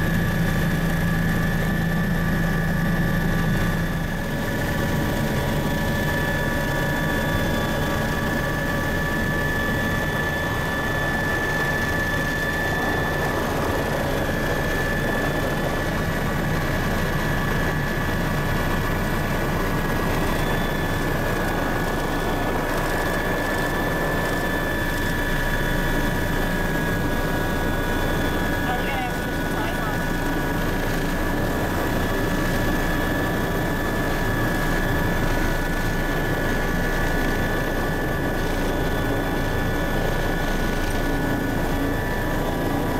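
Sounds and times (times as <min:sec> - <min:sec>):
helicopter engine and rotor drone: 0:00.0 - 0:42.9.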